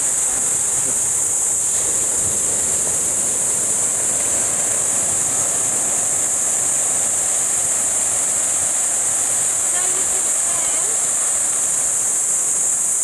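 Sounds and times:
high-pitched insect drone: 0.0 - 13.0
surf breaking on beach: 0.0 - 13.0.

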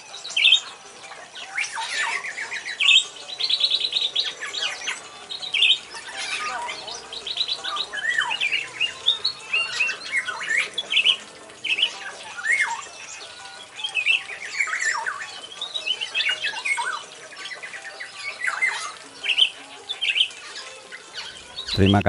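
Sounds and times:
oriole chattering calls: 4.0 - 22.0.

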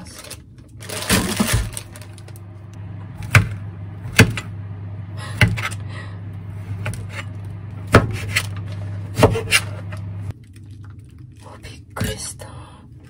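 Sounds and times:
steady low hum: 0.2 - 13.0
knife chopping on cutting board: 7.8 - 8.5, 9.1 - 9.8.

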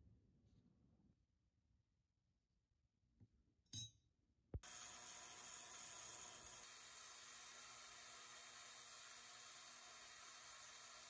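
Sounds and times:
ultrasonic cleaner hissing: 4.6 - 11.0.

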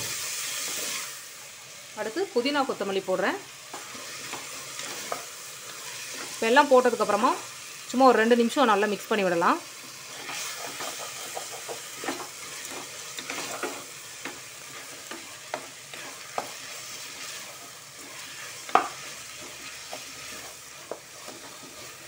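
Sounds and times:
vegetables sizzling in oil: 0.0 - 22.0
spoon scraping and knocking pot: 10.1 - 22.0.

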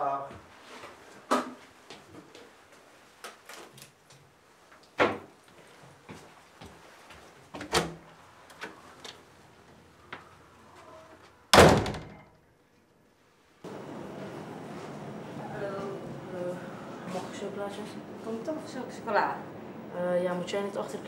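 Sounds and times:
door slamming: 11.5 - 12.3
door clicks and knocks: 11.6 - 12.3.

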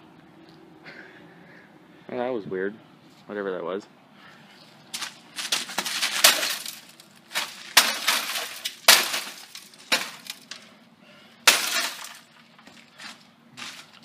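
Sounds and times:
glass shards clinking: 5.4 - 10.6, 11.5 - 12.3.

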